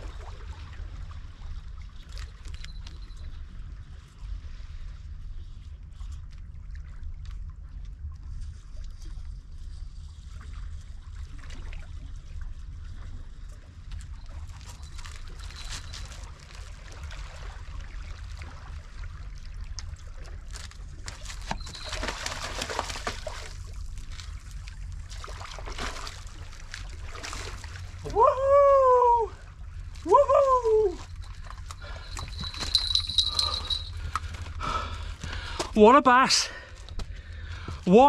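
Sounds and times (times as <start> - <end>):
fish thrashing at surface: 21.1 - 23.6.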